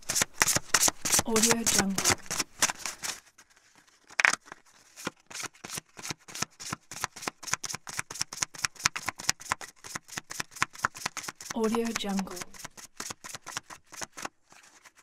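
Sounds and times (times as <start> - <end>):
playing cards shuffling clicks: 0.0 - 3.2, 4.1 - 14.9
sharp card snap: 0.1 - 3.1.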